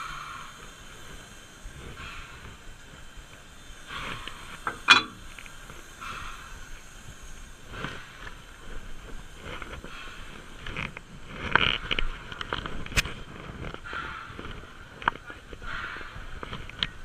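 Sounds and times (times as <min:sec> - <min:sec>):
sharp metallic clang: 0:04.7 - 0:05.4.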